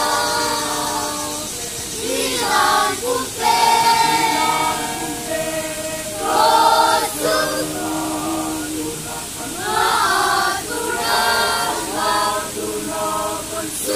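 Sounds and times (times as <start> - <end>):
choir singing unaccompanied: 0.0 - 13.9.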